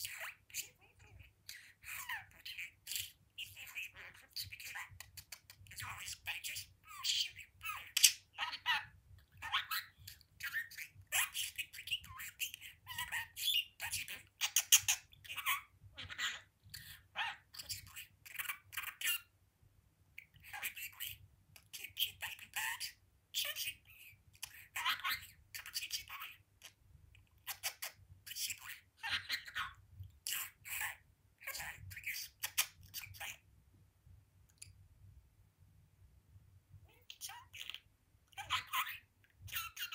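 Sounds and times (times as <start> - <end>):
budgerigar chattering: 0.0 - 19.3, 36.9 - 39.9.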